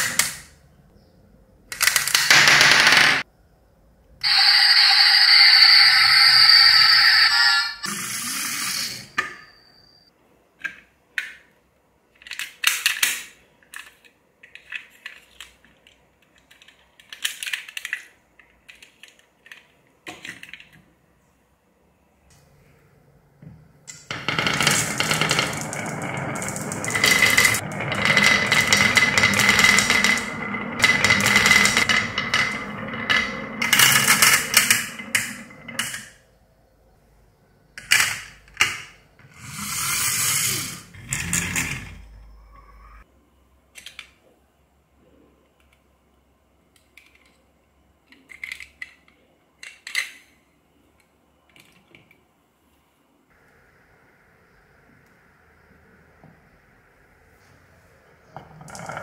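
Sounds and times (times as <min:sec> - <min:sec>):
marbles rattling down wooden track: 0:24.1 - 0:36.1, 0:58.4 - 0:59.0
marbles clattering into plastic toy: 0:24.1 - 0:36.2.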